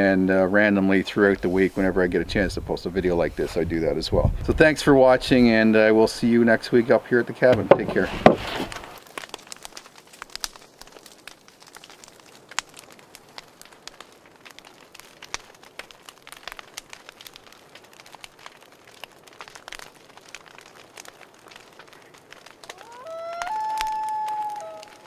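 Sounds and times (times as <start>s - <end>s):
irregular crackling clicks: 8.7s - 25.0s.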